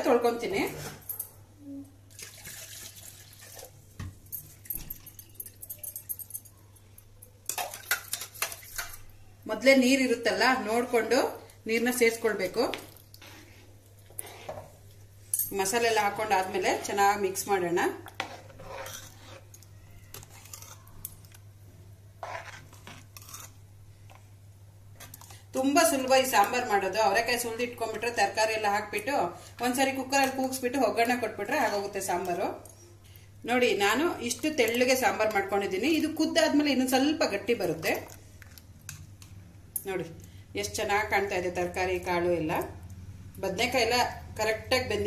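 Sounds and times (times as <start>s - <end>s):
metallic clinks against steel: 4.7s - 6.6s
ladle stirring thick stew: 12.7s - 15.0s, 17.9s - 21.4s, 22.2s - 24.2s.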